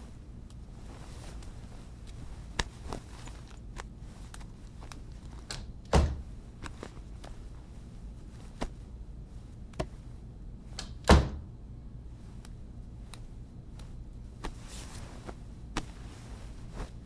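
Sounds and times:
cloth rustling: 0:00.0 - 0:10.7, 0:12.1 - 0:17.0.

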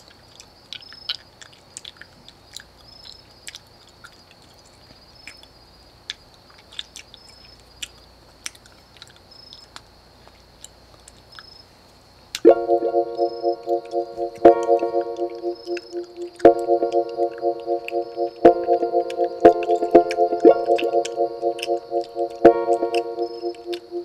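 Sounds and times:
insects trilling and chirping: 0:09.2 - 0:24.0
harp plucked notes: 0:12.5 - 0:24.0.

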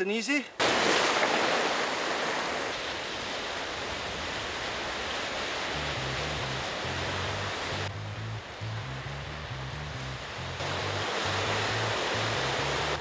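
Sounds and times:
ocean surf breaking on rocks: 0:00.6 - 0:07.9, 0:10.6 - 0:13.0
low bass background music: 0:05.8 - 0:13.0.

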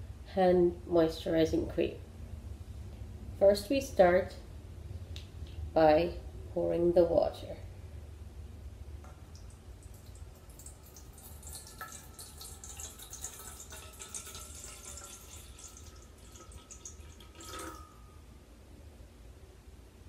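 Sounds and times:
faint steady tone: 0:06.0 - 0:20.0
water trickling into metal bowl: 0:09.3 - 0:18.2.

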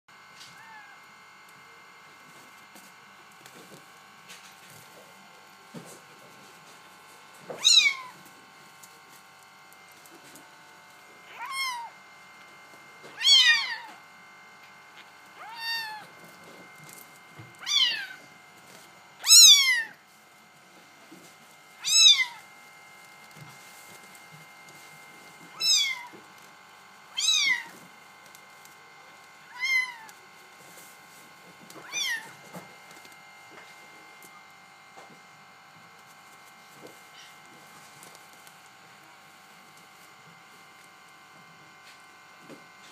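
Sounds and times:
kitten mewing: 0:00.4 - 0:01.0, 0:07.6 - 0:08.2, 0:11.2 - 0:12.0, 0:13.1 - 0:14.0, 0:15.0 - 0:16.1, 0:17.6 - 0:18.2, 0:19.2 - 0:20.0, 0:21.8 - 0:22.4, 0:25.6 - 0:26.1, 0:27.1 - 0:27.7, 0:29.5 - 0:30.1, 0:31.8 - 0:32.4.

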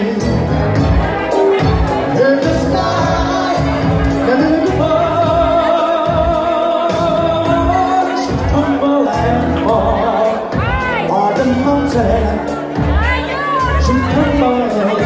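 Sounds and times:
backing track with beat: 0:00.0 - 0:15.0
man singing into microphone: 0:00.0 - 0:15.0.

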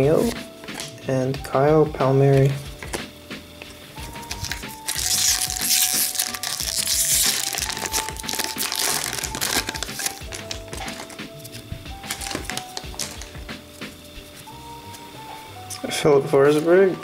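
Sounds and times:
background music: 0:00.0 - 0:17.0
card pack wrapper crinkling: 0:04.2 - 0:13.4.

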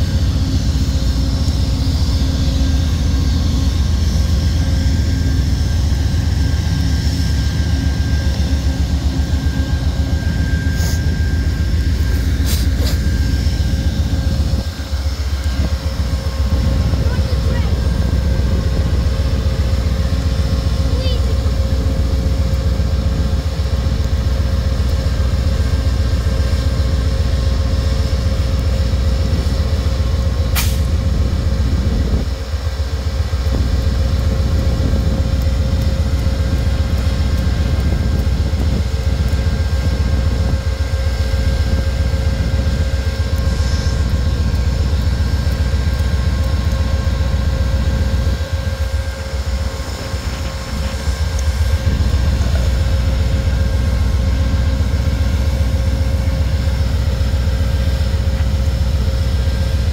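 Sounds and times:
diesel engine rumble: 0:00.0 - 0:59.9
steady whine: 0:00.0 - 0:59.9.

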